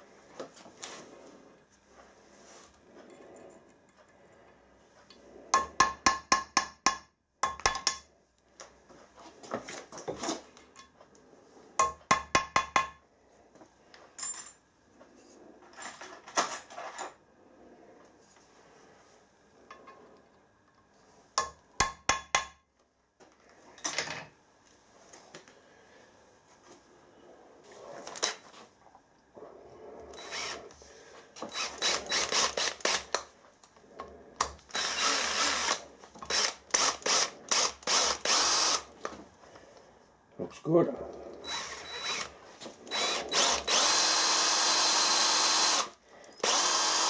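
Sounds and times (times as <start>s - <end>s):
metallic clinks and scraping: 2.9s - 5.7s, 14.0s - 14.6s
hammer tapping on steel: 5.6s - 8.1s, 11.8s - 13.0s, 21.4s - 22.6s.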